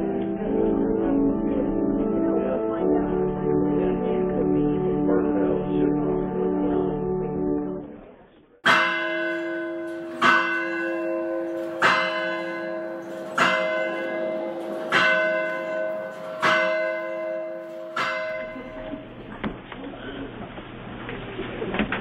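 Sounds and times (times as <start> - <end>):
church bell tolling: 8.6 - 19.2.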